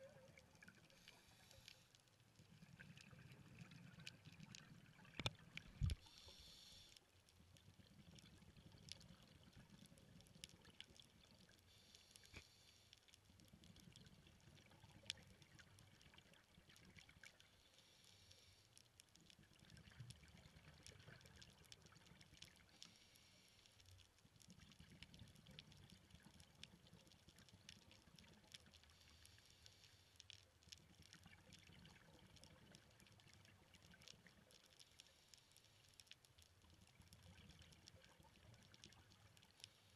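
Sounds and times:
low underwater bubbling: 0.0 - 1.1, 2.4 - 6.0.

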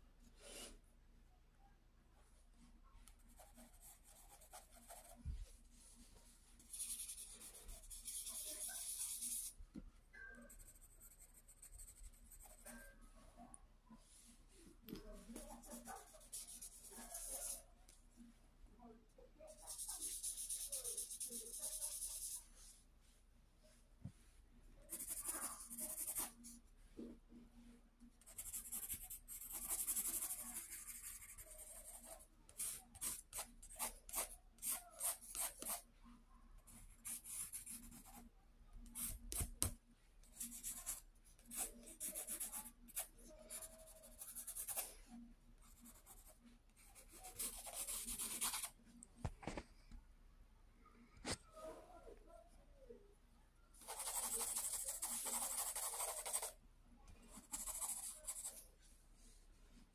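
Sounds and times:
pencil scratching on paper: 3.1 - 9.6, 10.2 - 13.0, 15.0 - 17.6, 19.5 - 22.7, 24.9 - 26.6, 28.2 - 35.9, 36.7 - 38.3, 38.9 - 45.0, 45.6 - 48.8, 53.8 - 56.6, 57.4 - 58.6.

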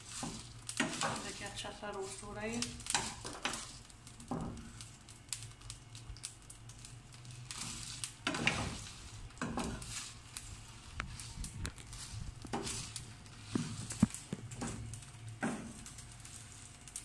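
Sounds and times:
seeds rattling in metal pan: 0.0 - 17.0
spoon scraping frying pan: 7.5 - 10.2, 11.0 - 14.8.

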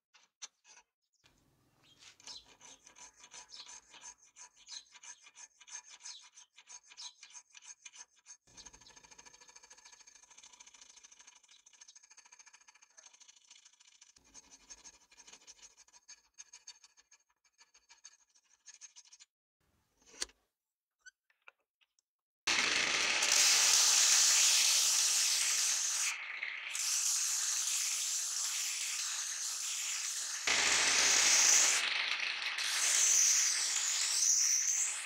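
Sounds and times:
hand file rasping on wood: 2.1 - 19.2, 26.8 - 31.8
sanding disc grinding: 2.2 - 16.0, 22.5 - 35.0.

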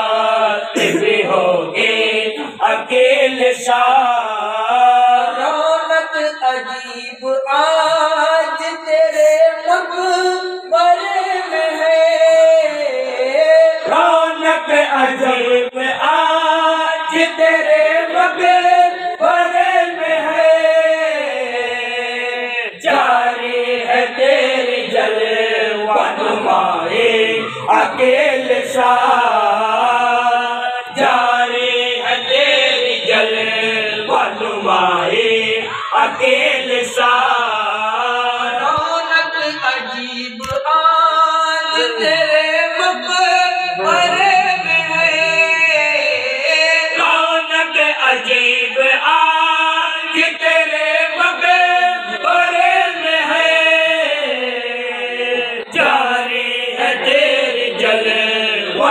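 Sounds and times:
men chanting devotional recitation: 0.0 - 58.9.

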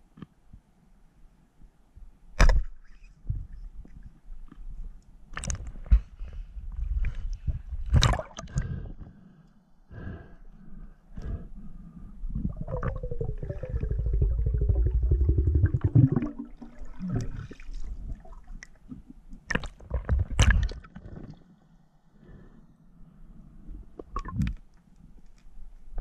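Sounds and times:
sharp knocks underwater: 19.5 - 21.2.

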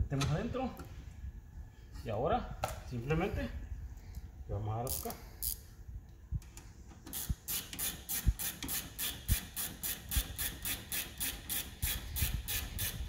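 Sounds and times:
ratcheting wrench clicking: 7.0 - 13.0.

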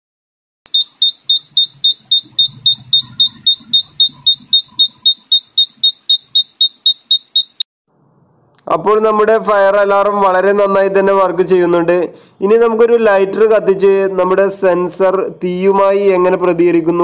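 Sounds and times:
high sharp alarm buzzer beeping: 0.7 - 7.7.

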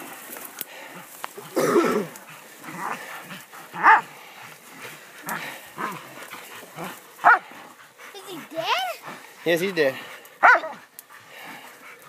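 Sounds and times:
dogs barking: 1.4 - 4.2, 5.2 - 12.0.

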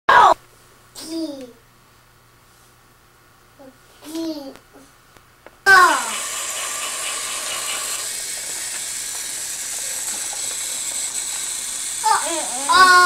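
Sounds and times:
toy train motor whirring rattle: 5.7 - 13.0.

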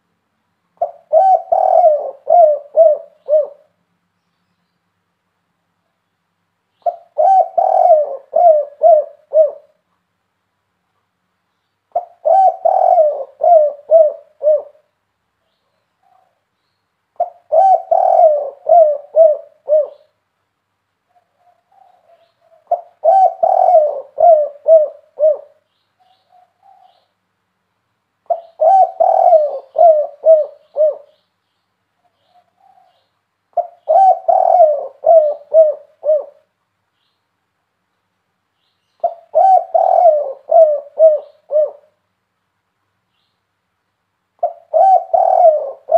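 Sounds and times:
dove cooing: 0.8 - 3.8, 6.8 - 9.8, 11.9 - 14.9, 15.7 - 16.4, 17.2 - 20.2, 21.1 - 27.1, 28.2 - 31.2, 32.0 - 36.5, 39.0 - 42.0, 44.4 - 45.9.

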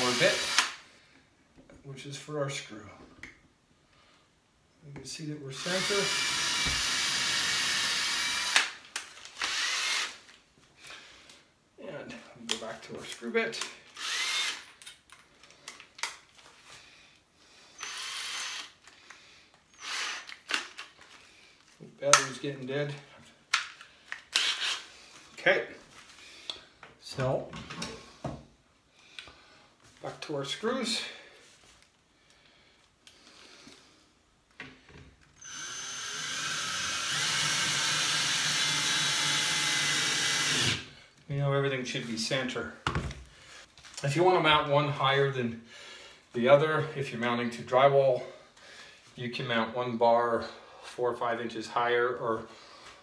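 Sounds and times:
cordless drill driving a screw: 0.0 - 0.8, 5.6 - 8.8, 9.4 - 10.2, 14.0 - 14.6, 17.8 - 18.8, 19.7 - 20.5, 24.3 - 24.8, 35.4 - 40.8.

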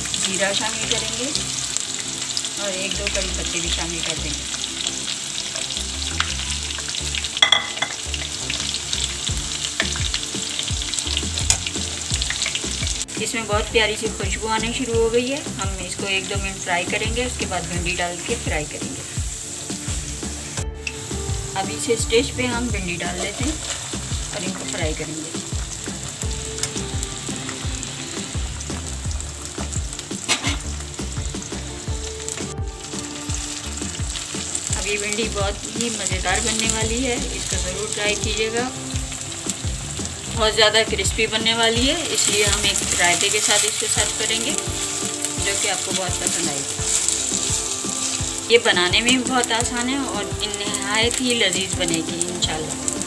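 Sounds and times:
soft background music: 0.0 - 53.0
spices sizzling in hot oil: 0.0 - 53.0
ringing metallic clink: 7.4 - 8.0
spatula stirring: 22.9 - 25.0, 42.2 - 49.2.

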